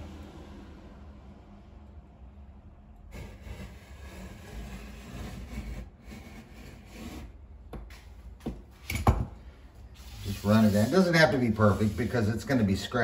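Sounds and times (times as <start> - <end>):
knife blade scraping through vinyl: 3.1 - 7.4, 10.0 - 12.4.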